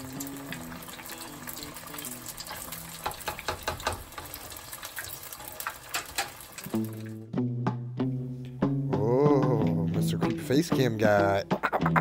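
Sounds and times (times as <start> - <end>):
fish deep-frying in hot oil: 0.0 - 7.2.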